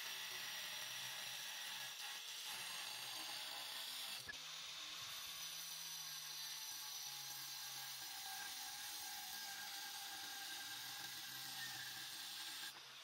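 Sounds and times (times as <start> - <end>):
angle grinder cutting: 0.0 - 13.0.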